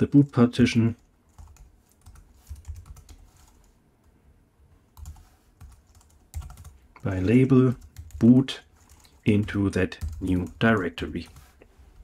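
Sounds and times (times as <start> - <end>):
computer keyboard typing: 0.8 - 3.8, 5.0 - 11.6.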